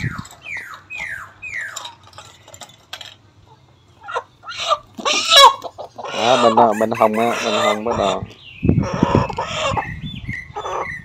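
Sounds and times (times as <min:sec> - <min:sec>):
chickens squawking: 0:00.0 - 0:02.0, 0:03.4 - 0:11.0.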